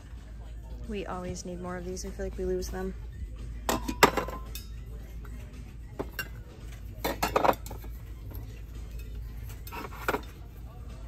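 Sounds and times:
metal tumblers clinking: 3.6s - 10.8s.

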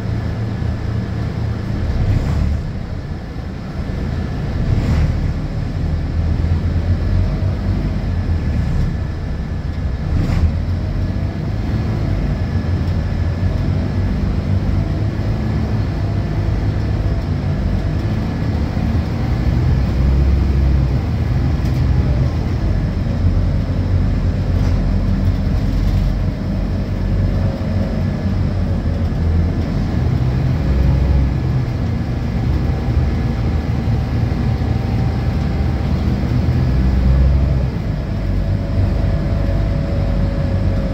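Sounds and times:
bus diesel engine under load: 0.0s - 40.9s.

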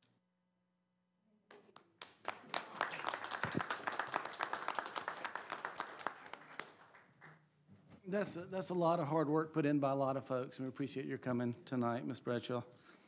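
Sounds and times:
small group applauding: 1.5s - 7.5s.

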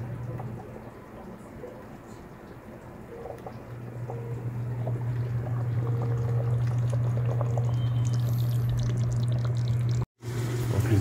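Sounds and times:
low hum: 0.0s - 10.1s
water pouring into pot: 4.9s - 11.0s.

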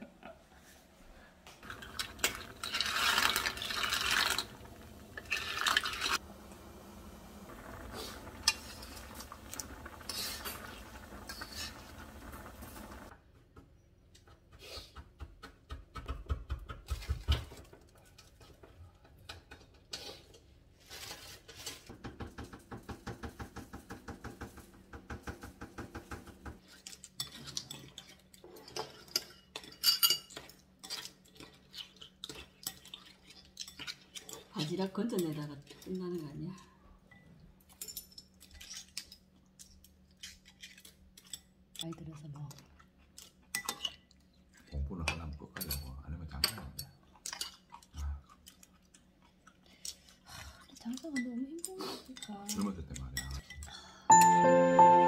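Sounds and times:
bowls and utensils clinking: 1.6s - 6.2s, 26.7s - 31.6s
soup bubbling in a pot: 1.6s - 13.1s.

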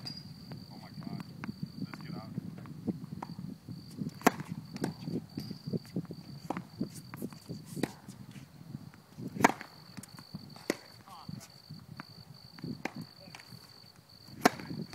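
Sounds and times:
tennis racket striking ball: 4.1s - 5.0s, 9.4s - 9.8s, 10.6s - 11.0s, 12.8s - 13.5s, 14.3s - 14.9s
tennis ball bouncing: 4.1s - 5.6s, 6.3s - 8.2s, 9.3s - 11.1s, 12.0s - 14.9s.

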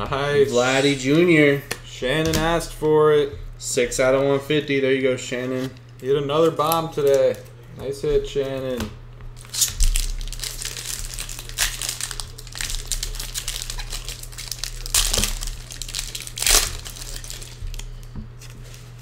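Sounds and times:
foil wrapper crinkling and tearing: 9.4s - 19.0s.

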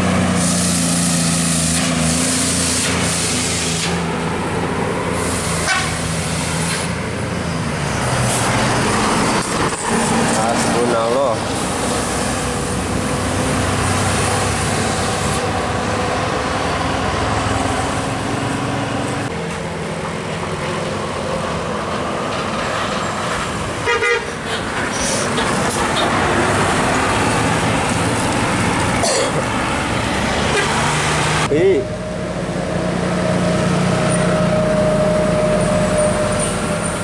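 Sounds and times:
vehicles driving past: 0.0s - 37.0s
horn blast: 5.6s - 6.0s.

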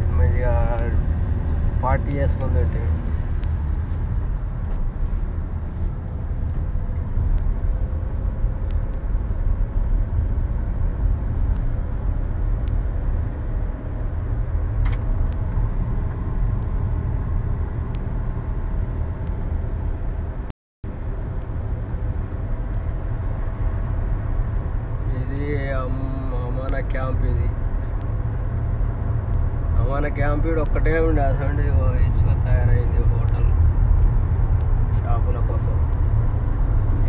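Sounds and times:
car cabin road rumble: 0.0s - 37.0s.

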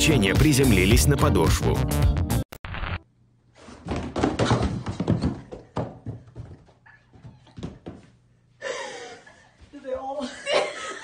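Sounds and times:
sneakers thudding down carpeted stairs: 3.7s - 8.3s.

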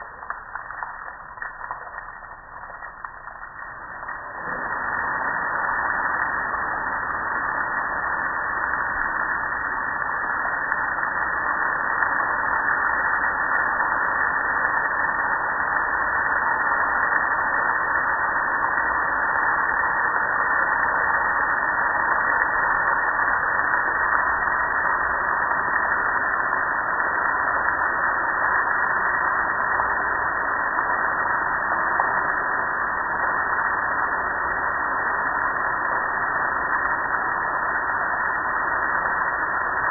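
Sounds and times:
water splashing on concrete: 0.0s - 4.3s.

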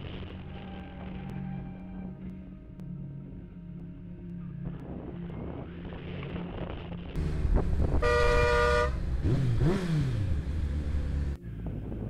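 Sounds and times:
road noise: 0.0s - 2.6s, 4.6s - 12.0s
motorcycle engine revving: 7.2s - 11.4s
vehicle horn: 7.9s - 9.2s.

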